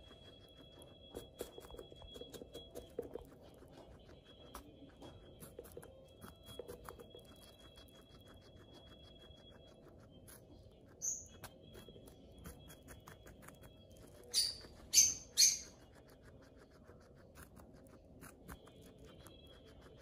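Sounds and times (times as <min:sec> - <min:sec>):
guinea pig chewing crunchily: 0:00.0 - 0:20.0
shrill bird chirps: 0:11.0 - 0:11.9, 0:13.3 - 0:16.0.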